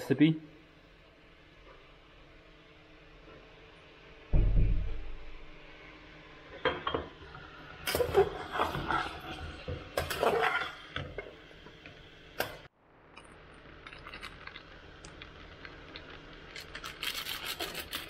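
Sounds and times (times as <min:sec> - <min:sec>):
frying crackle: 0:00.0 - 0:18.0
spatula scraping a pot: 0:07.9 - 0:11.4.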